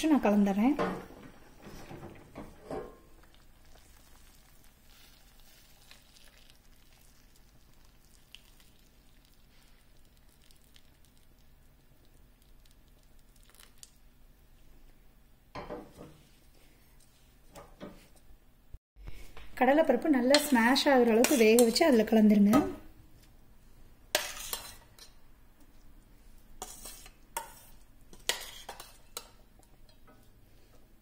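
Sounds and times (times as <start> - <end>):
sizzling in a pan: 2.7 - 14.0, 23.6 - 25.3, 26.1 - 30.8.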